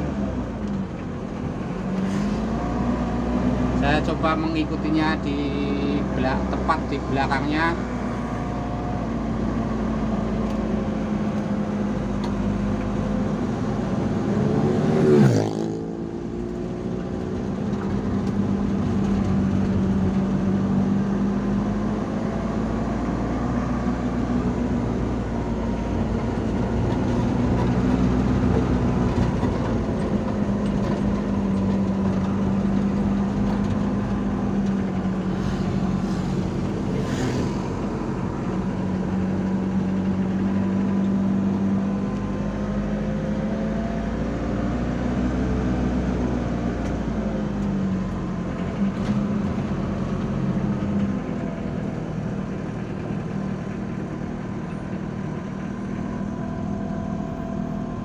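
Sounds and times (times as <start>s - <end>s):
vehicles driving along road: 0.0s - 58.0s
vehicle passing close by: 13.4s - 17.6s, 21.1s - 46.7s.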